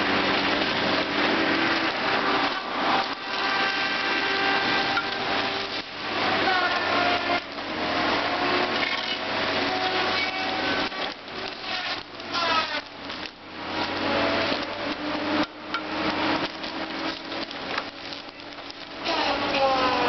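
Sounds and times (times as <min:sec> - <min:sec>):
heavy machine engine and hydraulics: 0:00.0 - 0:20.0
whining tones: 0:00.0 - 0:20.0
wood cracking and knocking: 0:09.9 - 0:20.0.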